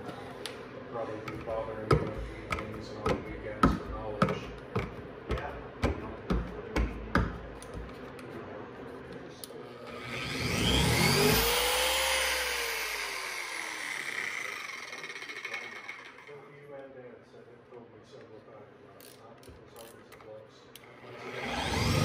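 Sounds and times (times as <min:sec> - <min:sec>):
polisher motor whine: 0:09.8 - 0:16.3, 0:21.1 - 0:22.0.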